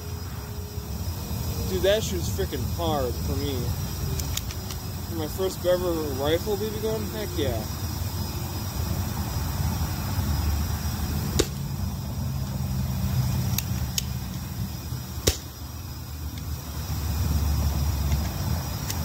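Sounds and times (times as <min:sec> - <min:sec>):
airsoft rifle shots: 0:11.3 - 0:11.6, 0:15.2 - 0:15.5.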